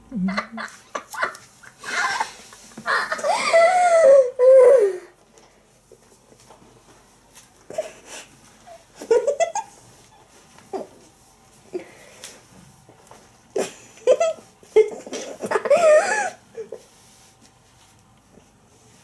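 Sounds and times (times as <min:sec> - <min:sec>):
people laughing: 0:00.2 - 0:03.9.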